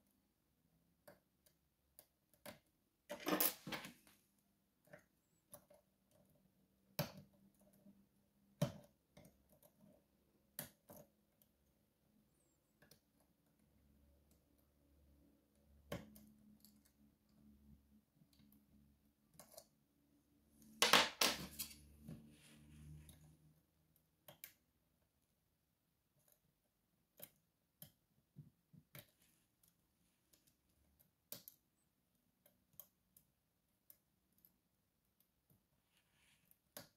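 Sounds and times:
metal picks clattering on table: 0:03.1 - 0:03.9, 0:20.8 - 0:21.8.

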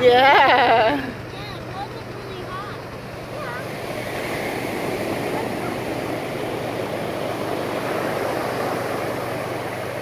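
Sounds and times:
helicopter drone overhead: 0:00.0 - 0:10.0
surf breaking on beach: 0:03.2 - 0:10.0.

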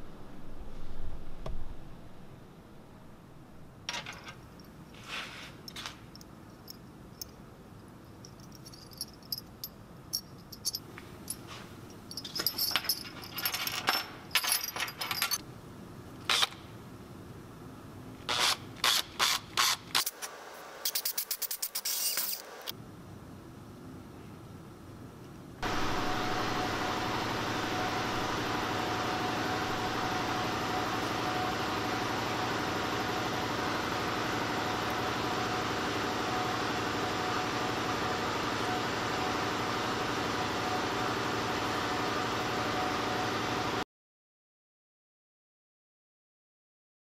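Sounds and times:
tools clinking on metal parts: 0:03.9 - 0:04.8, 0:08.1 - 0:15.4.

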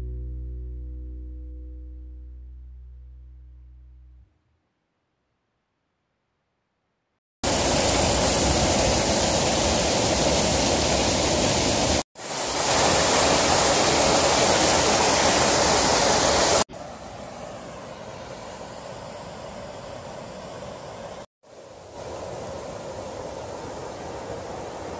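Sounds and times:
river rushing: 0:07.4 - 0:16.6, 0:21.5 - 0:24.9
waterfall rushing: 0:07.4 - 0:16.7.

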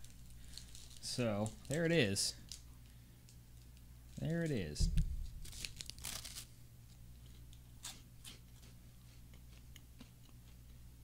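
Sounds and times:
crunching chocolate wafer: 0:00.0 - 0:02.6, 0:05.3 - 0:06.5.

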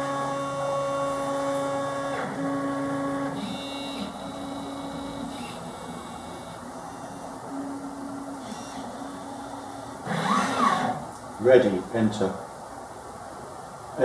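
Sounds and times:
stepper motors whining: 0:00.0 - 0:11.2.

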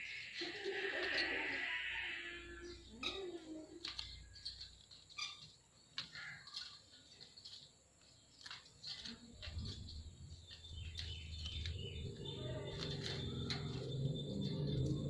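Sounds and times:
parakeets chirping: 0:00.0 - 0:03.4, 0:04.0 - 0:05.5, 0:09.7 - 0:15.0.

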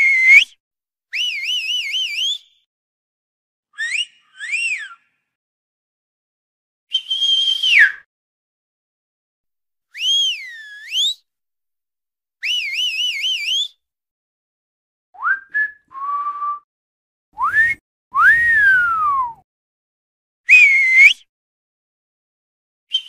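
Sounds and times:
person whistling: 0:10.0 - 0:11.2, 0:15.2 - 0:16.7, 0:17.4 - 0:19.4, 0:20.5 - 0:21.3.

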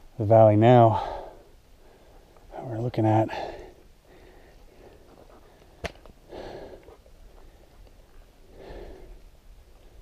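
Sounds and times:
person breathing: 0:00.9 - 0:02.4, 0:03.3 - 0:07.8, 0:08.4 - 0:10.0.

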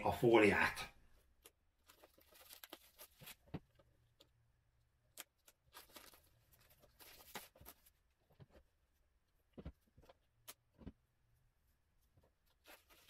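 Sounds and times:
gloves rustling: 0:01.2 - 0:13.0.

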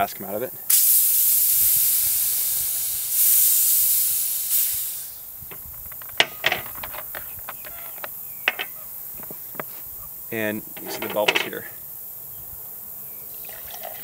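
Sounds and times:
pressurised gas hissing: 0:00.6 - 0:11.8.

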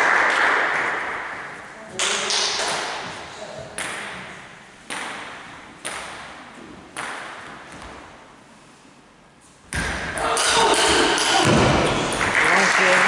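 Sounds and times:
loud thump: 0:10.9 - 0:12.1.

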